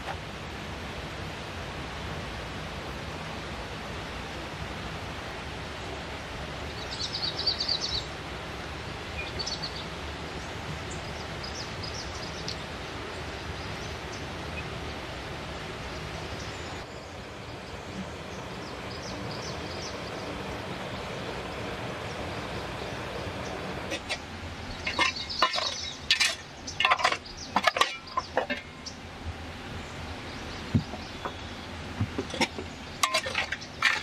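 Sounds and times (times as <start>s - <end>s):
stream water rushing: 0.0s - 34.0s.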